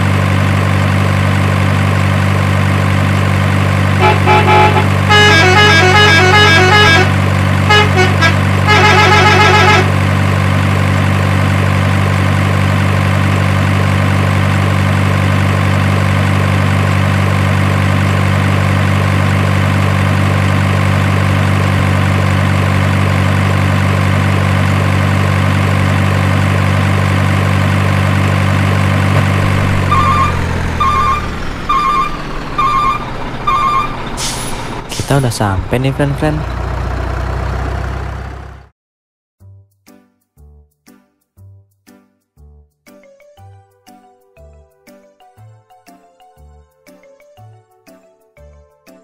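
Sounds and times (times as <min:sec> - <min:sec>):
truck engine drone: 0:00.0 - 0:38.7
horn toots: 0:04.0 - 0:10.0, 0:29.1 - 0:34.5.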